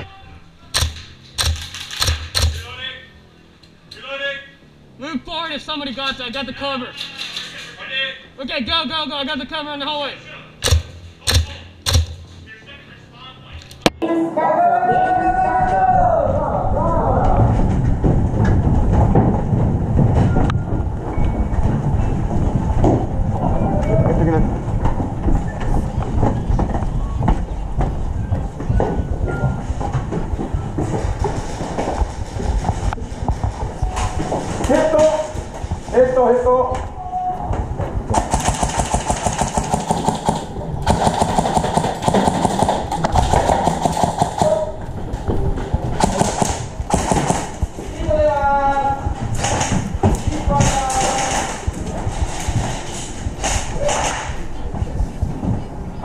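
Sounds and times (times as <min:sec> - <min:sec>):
airsoft guns firing rapid bursts: 0:00.8 - 0:02.7, 0:10.6 - 0:12.3, 0:38.1 - 0:44.7, 0:46.0 - 0:47.7
sharp clicks and knocks: 0:00.8 - 0:02.7, 0:10.6 - 0:12.4
low rumble: 0:15.6 - 0:34.7
footsteps: 0:17.2 - 0:56.0.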